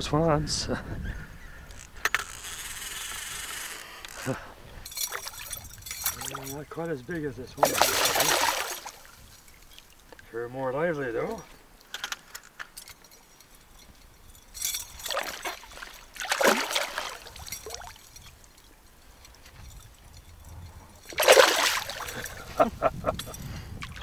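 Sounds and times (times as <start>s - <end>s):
fish splashing and thrashing: 2.2s - 6.6s, 7.5s - 10.1s, 13.4s - 22.6s.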